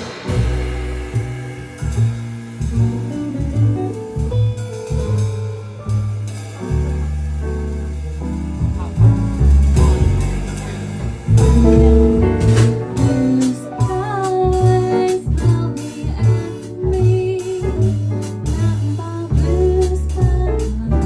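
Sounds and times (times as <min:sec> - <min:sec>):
drum kit with cymbals: 0:00.0 - 0:21.0
grand piano: 0:00.0 - 0:21.0
walking double bass: 0:00.0 - 0:21.0
woman singing: 0:13.0 - 0:21.0.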